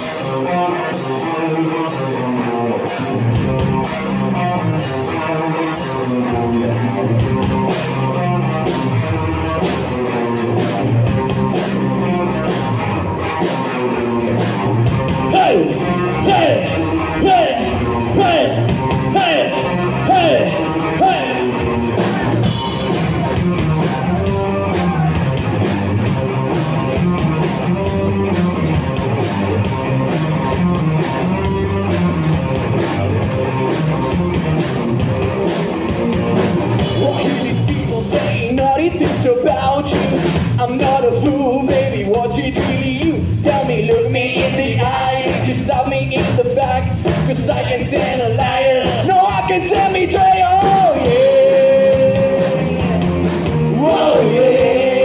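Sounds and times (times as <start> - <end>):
drum kit: 0.0 - 55.0
electric bass: 0.0 - 55.0
electric guitar: 0.0 - 55.0
person singing: 15.3 - 21.6, 36.9 - 55.0.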